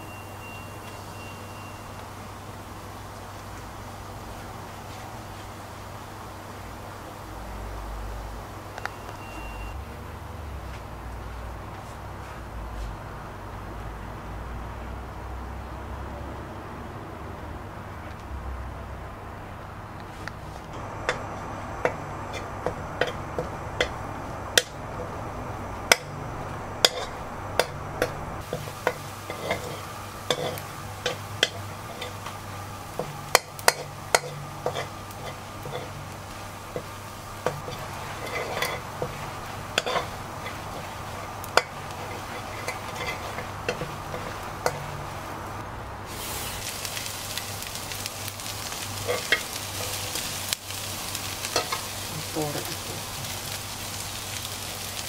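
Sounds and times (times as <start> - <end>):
food sizzling in oil: 0.0 - 9.9, 20.2 - 55.0
steady low hum: 18.7 - 53.6
spatula scraping wok: 20.1 - 55.0.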